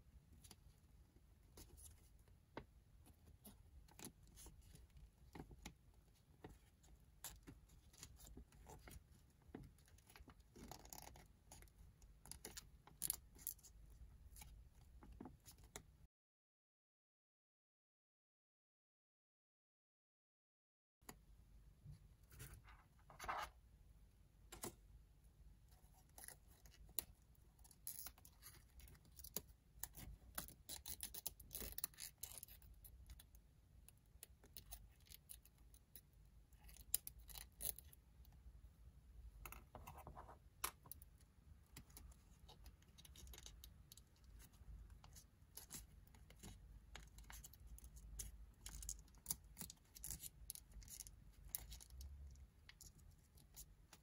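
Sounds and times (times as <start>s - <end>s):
paper rustling and crinkling: 22.3s - 23.5s.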